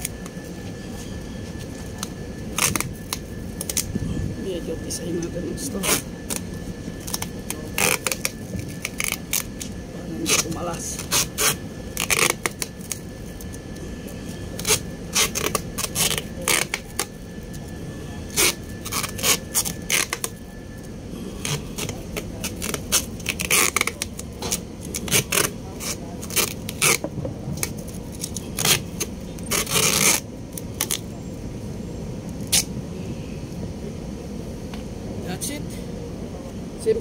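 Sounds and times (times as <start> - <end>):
adhesive tape ripping: 2.0 - 3.9, 7.0 - 13.5, 14.6 - 17.1, 18.3 - 20.4, 21.4 - 31.0, 32.4 - 32.7.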